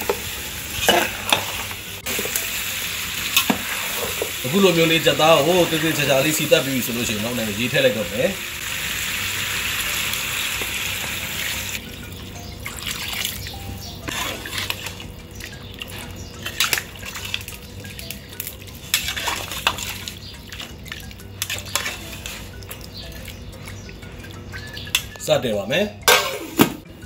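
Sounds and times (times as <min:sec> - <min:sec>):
water hissing in hot oil: 0:00.0 - 0:11.8
metal spatula scraping pot: 0:14.0 - 0:17.5, 0:18.9 - 0:20.8, 0:21.4 - 0:23.4.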